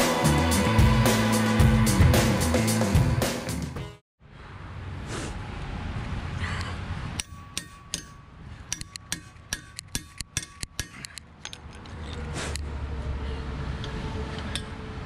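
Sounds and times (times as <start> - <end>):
metal tools tapping and clinking: 7.2 - 12.2.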